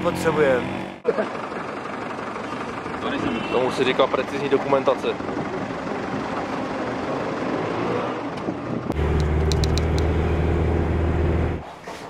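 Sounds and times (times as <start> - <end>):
street vehicle engine noise: 0.0 - 12.0
steady low engine hum: 8.8 - 11.7.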